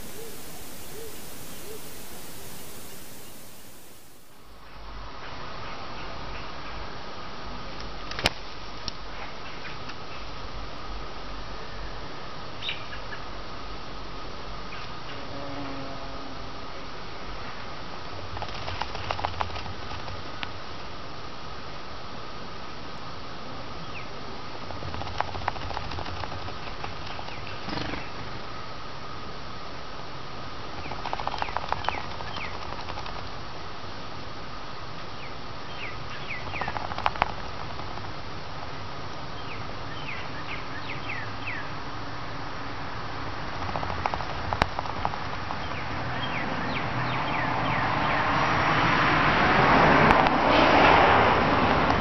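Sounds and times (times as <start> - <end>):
bird chirping: 0.0 - 4.4, 30.8 - 32.8, 35.2 - 37.0, 39.4 - 41.7
bird rustling in nest: 0.0 - 4.4
steady rushing background: 0.0 - 4.5, 24.9 - 27.2
steady hiss: 0.0 - 9.1
sharp clicks: 18.4 - 20.2, 24.7 - 27.6, 30.8 - 33.3, 36.4 - 38.2, 43.5 - 45.7.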